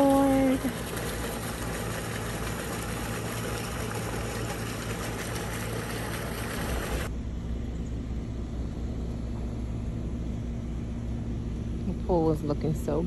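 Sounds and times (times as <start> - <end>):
water splashing from hose: 0.0 - 7.1
dull low rumble: 0.0 - 13.0
low hum: 0.0 - 13.0.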